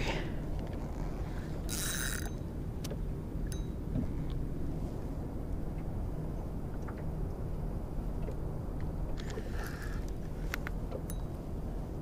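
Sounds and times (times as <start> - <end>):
steady low rumble: 0.0 - 12.0
fishing reel drag buzzing: 0.9 - 2.4
fishing reel clicks: 1.7 - 2.4.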